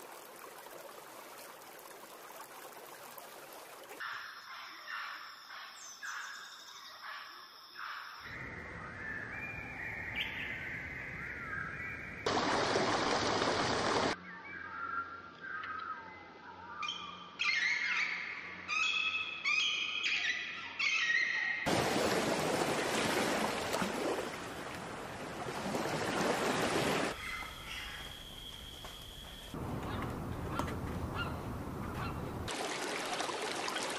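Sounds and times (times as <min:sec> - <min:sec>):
bird calls: 0:04.0 - 0:12.3, 0:14.2 - 0:21.7, 0:27.0 - 0:32.5
whistled songbird phrases: 0:07.8 - 0:12.2, 0:14.2 - 0:21.6.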